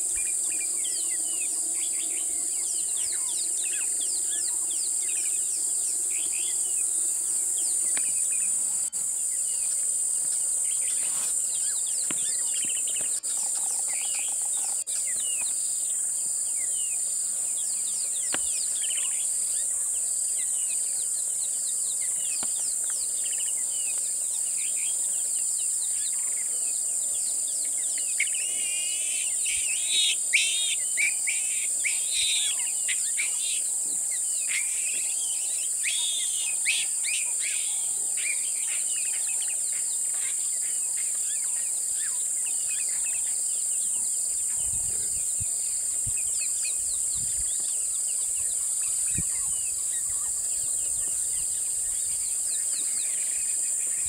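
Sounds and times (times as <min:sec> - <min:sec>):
birds chirping: 0:00.0 - 0:54.0
high-pitched insect chorus: 0:00.0 - 0:54.0.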